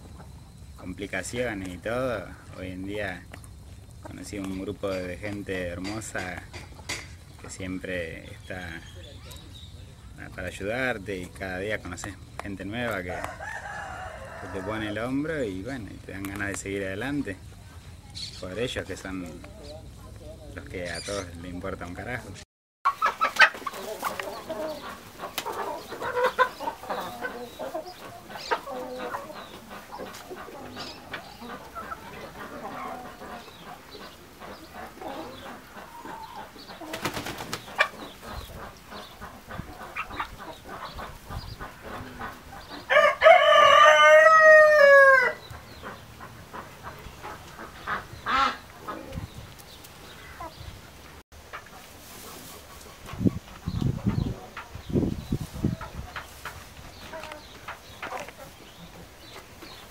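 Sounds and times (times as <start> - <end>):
chickens clucking: 0.0 - 59.9
rooster crowing: 13.1 - 15.0, 42.9 - 45.4.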